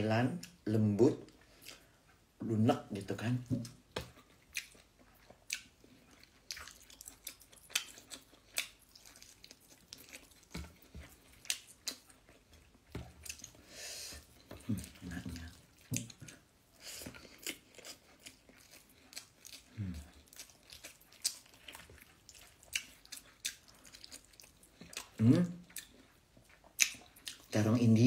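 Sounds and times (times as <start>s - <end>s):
person chewing food: 0.3s - 2.4s, 3.2s - 28.0s
person speaking: 2.4s - 3.7s, 14.6s - 15.6s, 27.5s - 28.0s.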